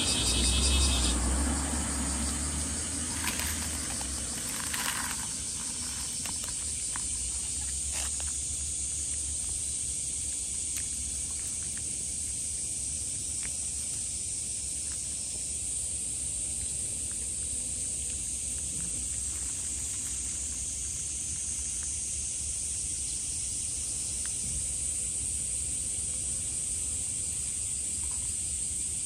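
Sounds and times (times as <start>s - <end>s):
rustling: 3.0s - 8.5s.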